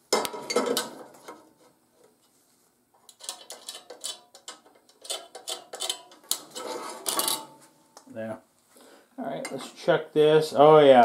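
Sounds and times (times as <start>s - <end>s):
steel bar scraping and clinking: 3.1s - 7.7s.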